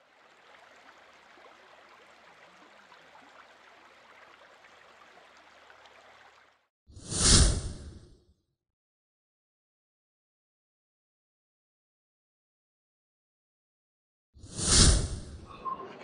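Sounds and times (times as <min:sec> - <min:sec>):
stream running over rocks: 0:00.0 - 0:06.6.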